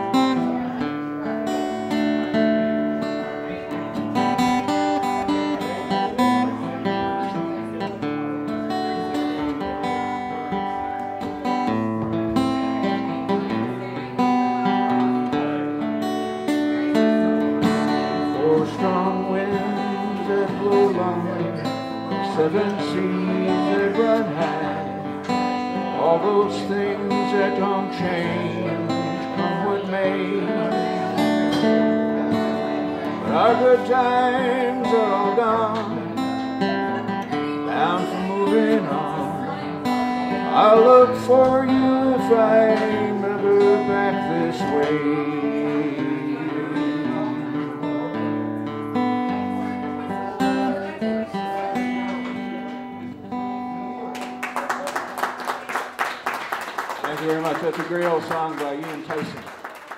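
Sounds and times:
acoustic guitar folk melody: 0.0s - 59.9s.

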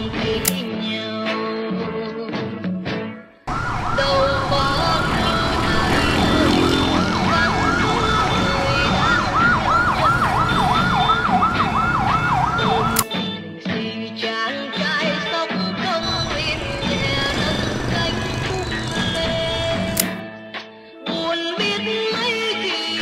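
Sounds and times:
music: 0.0s - 23.0s
emergency siren yelping: 3.5s - 13.1s, 16.0s - 20.1s
street traffic noise: 3.5s - 13.1s, 15.8s - 20.2s.

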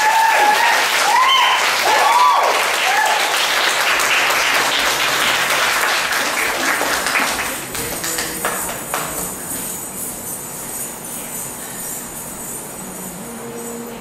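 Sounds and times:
high whooping cheers: 0.0s - 3.7s
audience applauding: 0.0s - 9.6s.

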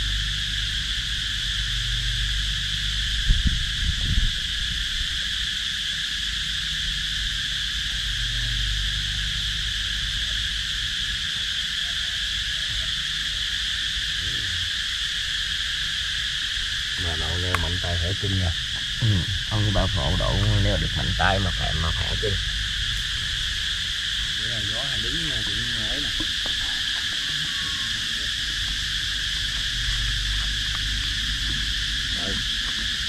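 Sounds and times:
shrill insect chorus: 0.0s - 33.0s
low rumble: 17.0s - 33.0s.

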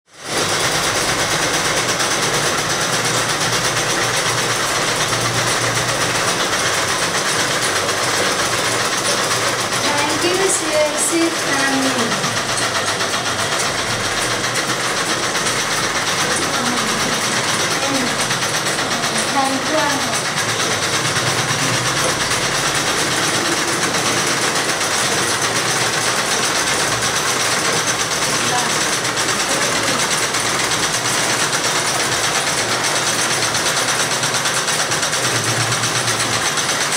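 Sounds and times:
sewing machine clattering: 0.0s - 36.9s
woman speaking: 9.8s - 12.4s, 17.7s - 18.2s, 19.0s - 20.3s, 28.4s - 28.8s.

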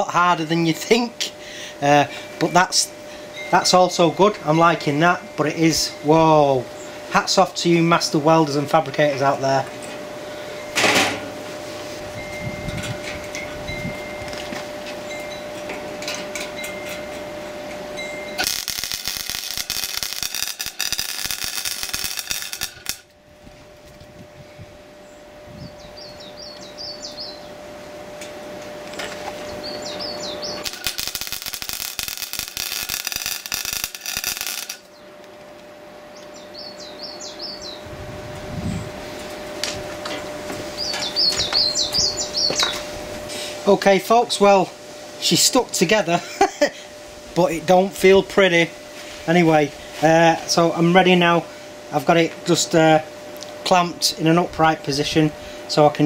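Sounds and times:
welder arc crackling and buzzing: 0.0s - 56.0s
birds chirping: 25.0s - 28.0s, 29.0s - 30.8s, 36.0s - 37.9s, 40.7s - 42.9s.

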